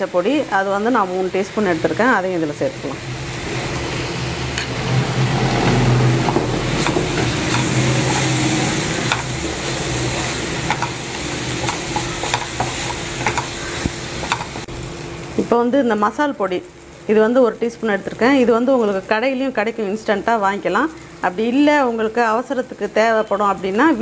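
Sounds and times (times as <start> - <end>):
paste sizzling in hot oil: 0.0 - 24.0
spatula scraping a pan: 6.2 - 14.5.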